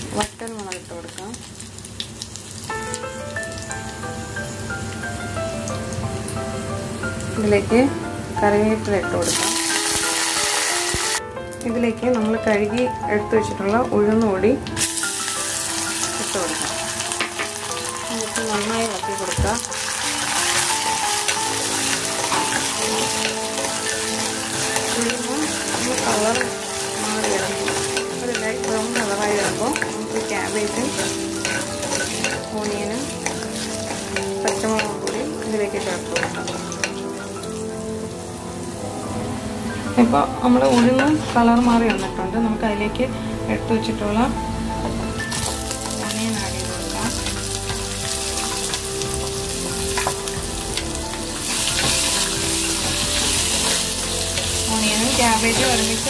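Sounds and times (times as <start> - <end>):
spices sizzling in hot oil: 0.0 - 42.6, 44.1 - 56.0.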